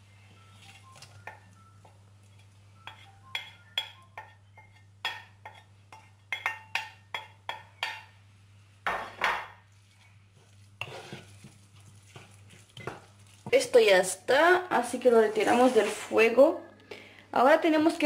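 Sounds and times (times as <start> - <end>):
wooden spatula tapping a plate: 2.9 - 5.6
spatula scraping a pan: 9.7 - 13.5, 15.0 - 16.4.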